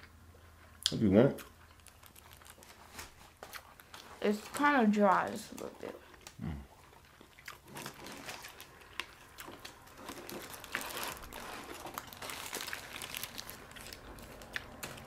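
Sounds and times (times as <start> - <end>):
paper wrappers crinkling: 1.8 - 5.8, 7.6 - 15.0.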